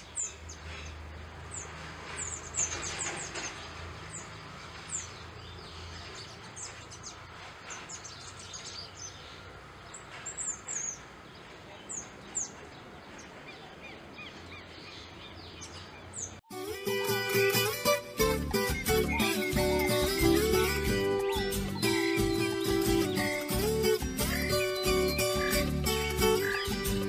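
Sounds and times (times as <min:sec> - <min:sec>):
bird calling with high thin notes: 0:13.5 - 0:27.0.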